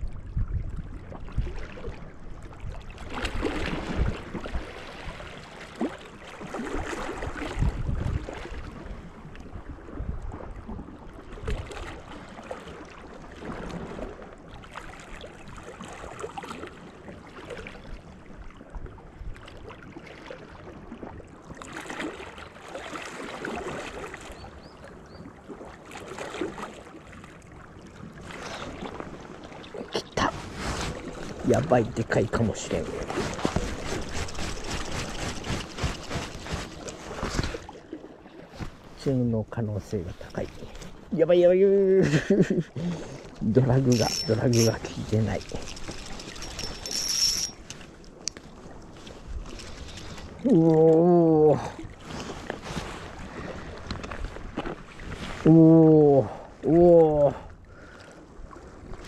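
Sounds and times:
small waves lapping on shore: 0:00.0 - 0:59.0
wind buffeting microphone: 0:07.2 - 0:10.9.

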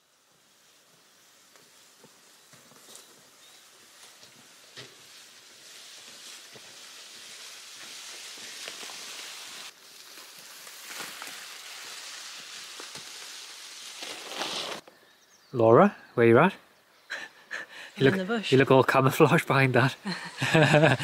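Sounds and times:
branches rustling through grass: 0:00.4 - 0:14.9.

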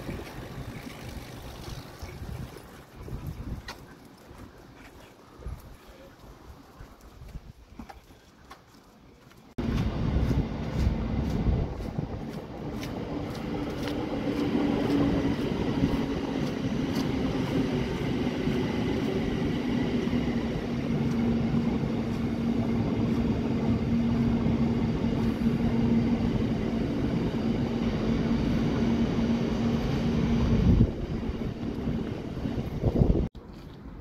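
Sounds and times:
train wheels rumbling on rails: 0:09.6 - 0:33.3.

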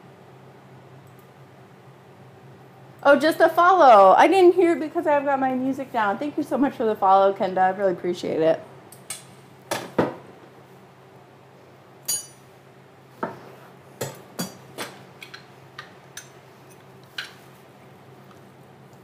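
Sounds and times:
metal clink ringing: 0:12.1 - 0:12.4.

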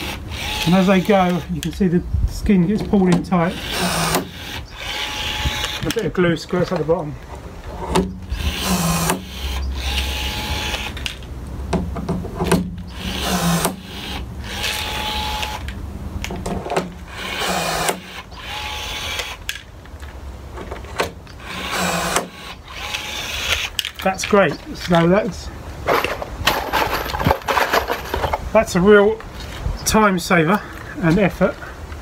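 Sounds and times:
rivet gun motor whirring: 0:00.0 - 0:01.7, 0:03.5 - 0:06.0, 0:08.3 - 0:11.1, 0:12.9 - 0:15.7, 0:17.1 - 0:19.6, 0:21.3 - 0:23.9.

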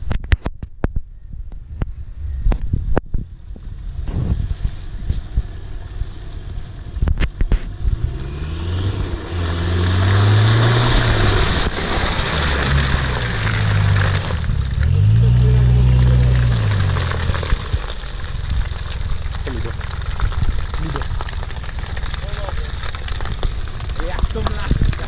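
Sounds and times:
pickup engine revving: 0:07.4 - 0:24.0
tyres churning mud: 0:08.1 - 0:25.0.

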